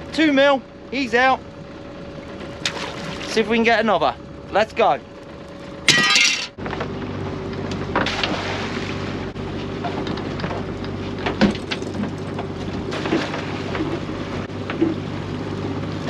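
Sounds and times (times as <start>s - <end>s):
outboard motor running: 0.0s - 16.0s
water rushing along hull: 2.2s - 4.2s, 7.9s - 10.9s
hull slapping on water: 2.3s - 3.5s, 8.0s - 15.0s.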